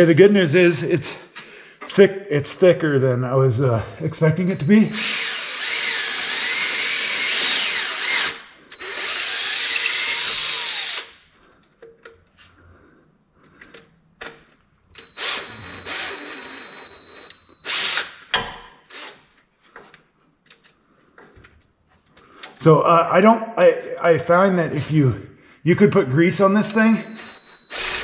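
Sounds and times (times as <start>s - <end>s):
power drill whining: 4.3s - 11.2s, 15.0s - 18.2s, 18.9s - 19.3s, 26.6s - 28.0s.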